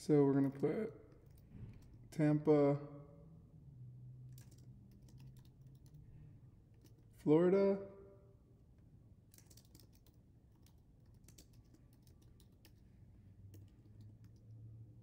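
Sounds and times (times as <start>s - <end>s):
typing on a keyboard: 0.3s - 2.0s, 4.3s - 6.0s, 6.7s - 7.0s, 9.3s - 14.5s.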